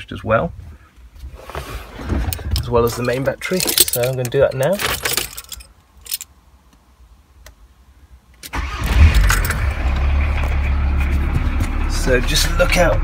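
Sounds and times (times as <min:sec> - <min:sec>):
van engine starting and idling: 0:08.5 - 0:13.0.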